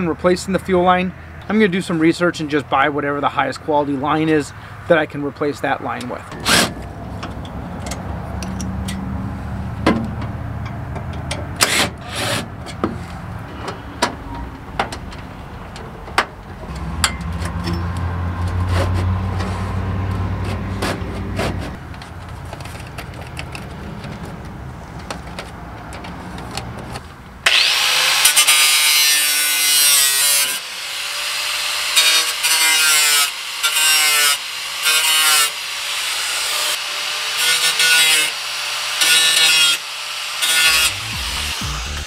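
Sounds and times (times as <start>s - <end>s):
angle grinder grinding steel: 27.4s - 42.0s.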